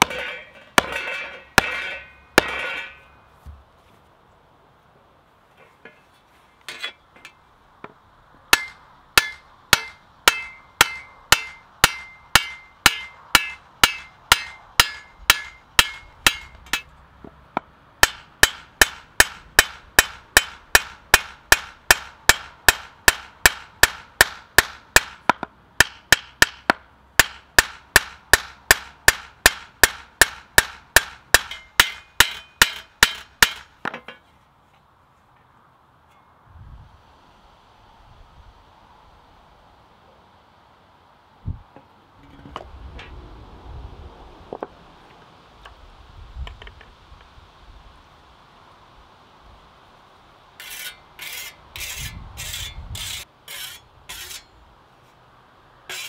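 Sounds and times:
hammer striking metal blade: 0.0 - 3.1, 8.5 - 16.9, 25.8 - 33.7.

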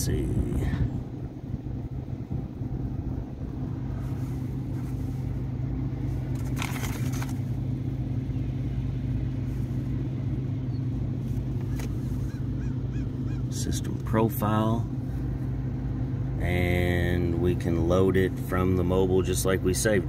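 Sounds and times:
low droning machinery hum: 0.0 - 20.0
paper rustle: 6.2 - 7.5.

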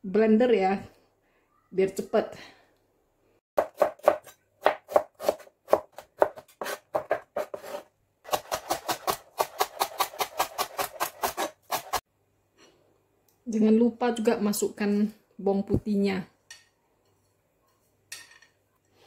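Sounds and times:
knife chopping on plastic board: 3.6 - 12.0.

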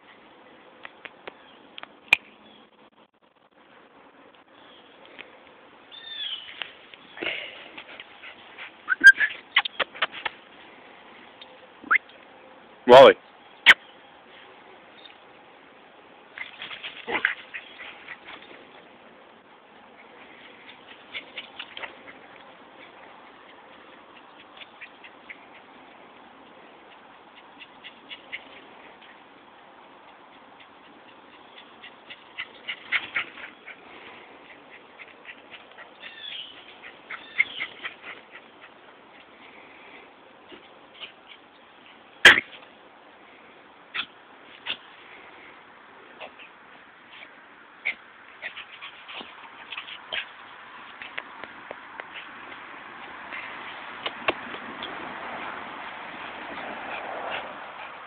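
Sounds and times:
small dog whining: 8.9 - 9.9
small dog yapping: 8.9 - 10.2, 42.2 - 42.6, 43.9 - 44.8.

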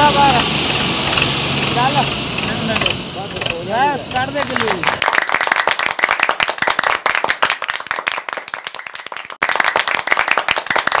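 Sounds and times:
crowd applauding: 4.3 - 11.0.

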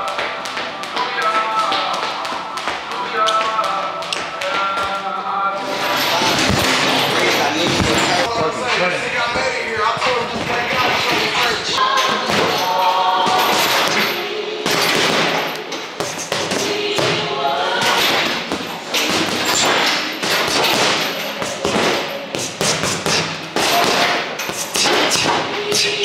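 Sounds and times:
punches thudding on heavy bag: 12.2 - 25.9.

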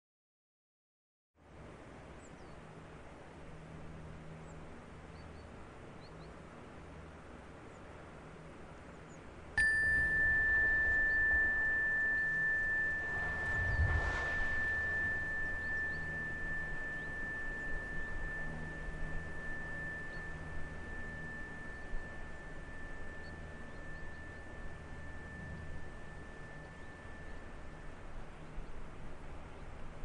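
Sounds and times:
faint background hiss: 1.4 - 30.0
soft rush of noise: 1.4 - 30.0
high steady ringing tone: 9.6 - 30.0.

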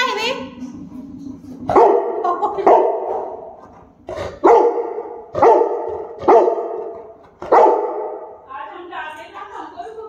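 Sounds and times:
dog barking: 1.7 - 3.6, 4.2 - 8.4.

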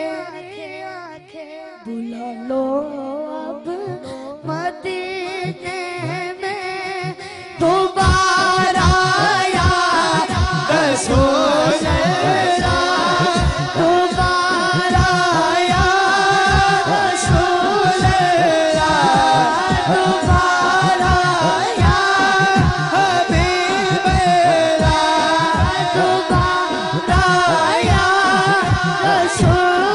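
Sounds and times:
boy singing into a microphone: 0.0 - 29.9
regular low beat: 6.9 - 7.2, 7.9 - 29.9
steady held drone note: 8.0 - 29.6.

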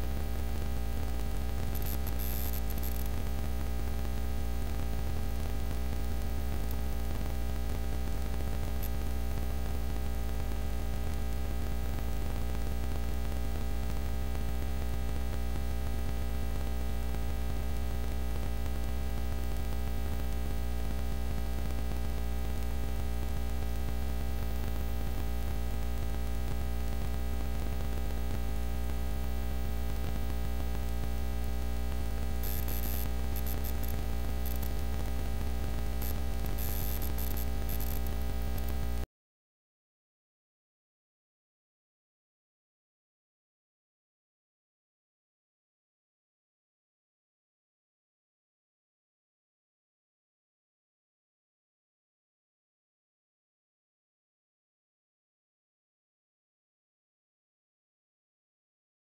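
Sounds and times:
electrical hum with static hiss: 0.0 - 39.1.

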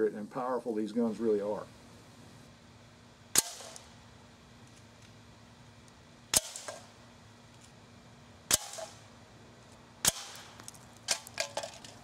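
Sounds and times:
air rifle shots: 3.3 - 3.9, 6.3 - 6.9, 8.5 - 9.0, 10.0 - 10.6.

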